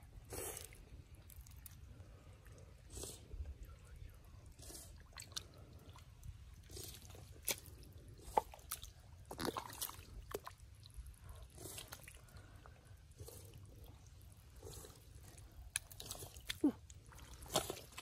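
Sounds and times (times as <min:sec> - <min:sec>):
wet mud squelching: 0:04.8 - 0:18.0.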